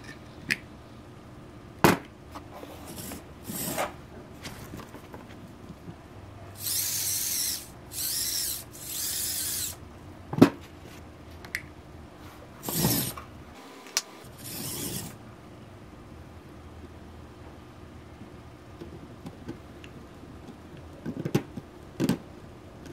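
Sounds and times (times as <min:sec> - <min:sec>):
small electric motors running: 0:02.9 - 0:03.8, 0:06.6 - 0:09.8, 0:12.6 - 0:15.2.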